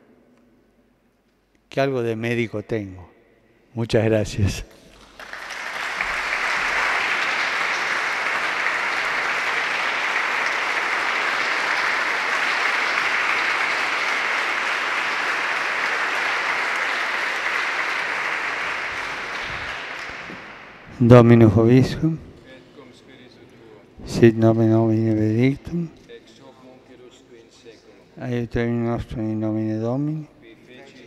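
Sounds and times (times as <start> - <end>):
audience applauding: 4.9 - 21.9.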